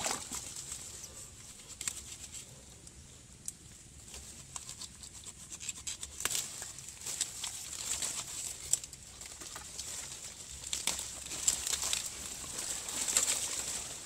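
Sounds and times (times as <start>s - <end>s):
dry leaf litter crackling: 6.0s - 14.0s.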